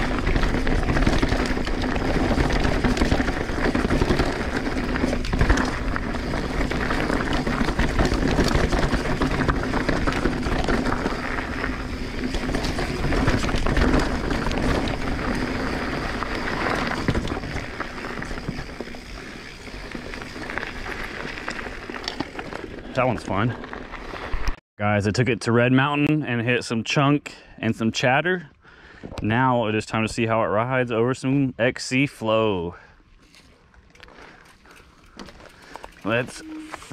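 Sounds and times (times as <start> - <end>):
bike rattling and knocking: 0.0 - 24.3, 34.0 - 36.9
bike tyres rushing on dirt: 0.0 - 24.6, 33.2 - 36.9.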